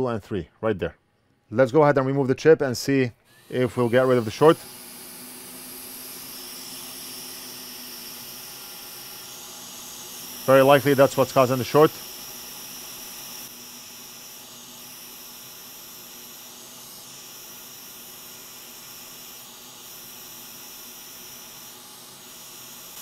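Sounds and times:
hot air hiss: 3.3s - 23.0s.

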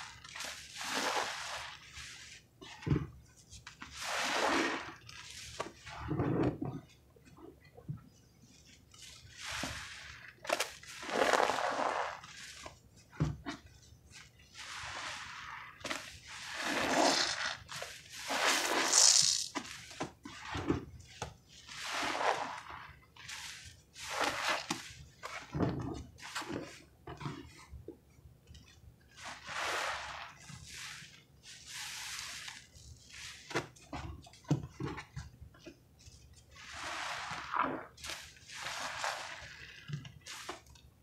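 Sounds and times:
sponges squelching in suds: 0.0s - 6.9s, 8.5s - 27.7s, 29.1s - 35.3s, 36.4s - 40.8s
cloth being wrung: 0.2s - 2.4s, 8.9s - 12.8s, 14.6s - 20.6s, 21.7s - 25.6s, 29.2s - 33.9s, 36.6s - 40.7s.

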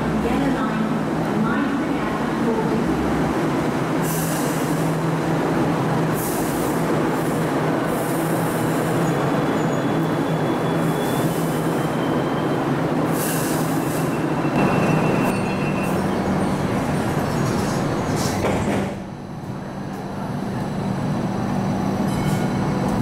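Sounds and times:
light rail train humming: 0.0s - 23.0s
faint wheel squeal: 9.0s - 12.5s.

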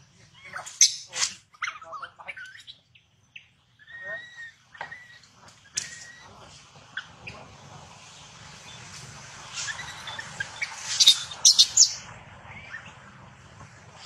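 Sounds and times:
baby monkey shrieking: 11.0s - 12.0s.

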